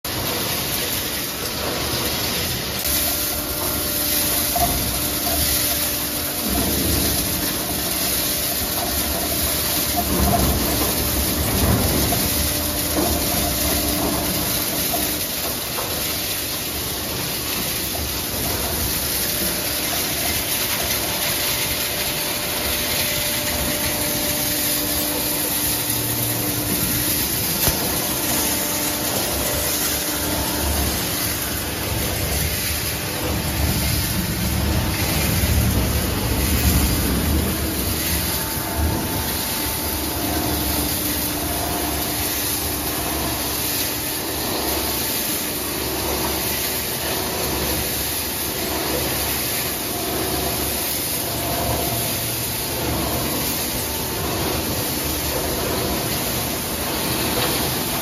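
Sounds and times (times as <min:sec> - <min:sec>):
shredder crunching pipes: 0:00.0 - 0:58.0
shredder machine hum: 0:00.0 - 0:58.0.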